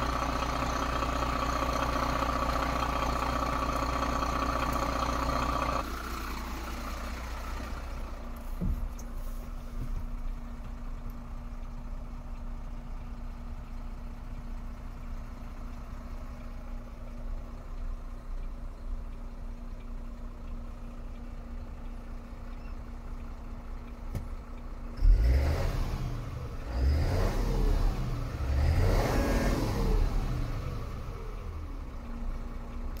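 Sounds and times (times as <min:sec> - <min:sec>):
diesel truck engine idling: 0:00.0 - 0:33.0
truck engine revving: 0:25.0 - 0:31.8.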